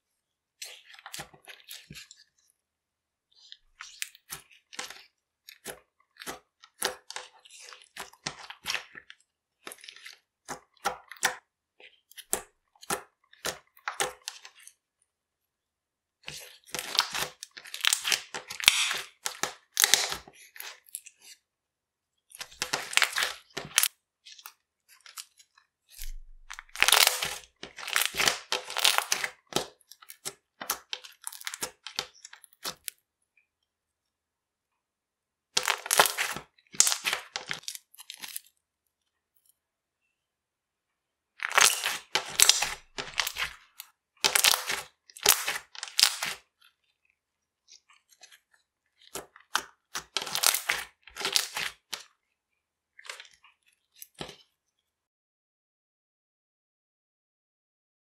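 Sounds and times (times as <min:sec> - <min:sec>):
slime crackling and popping: 0:16.8 - 0:20.8, 0:26.0 - 0:32.9, 0:35.6 - 0:38.4, 0:41.4 - 0:43.6, 0:44.2 - 0:46.4, 0:49.4 - 0:52.0.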